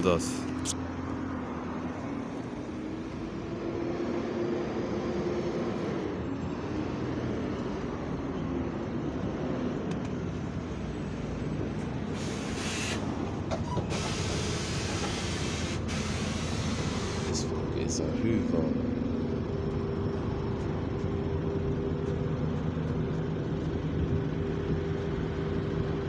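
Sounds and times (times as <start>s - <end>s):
bus cooling fan drone: 0.0s - 26.0s
traffic: 0.0s - 26.0s
bus brake hiss: 12.2s - 13.1s, 13.7s - 17.4s.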